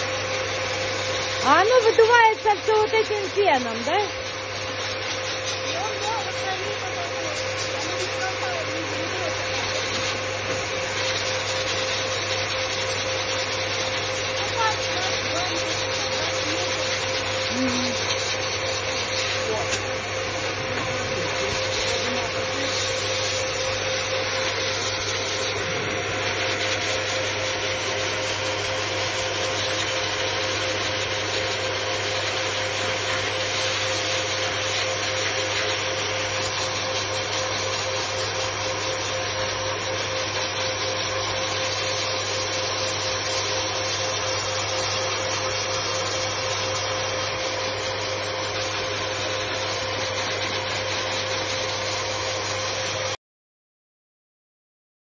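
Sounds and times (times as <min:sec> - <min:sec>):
pet grooming dryer whining: 0:00.0 - 0:53.2.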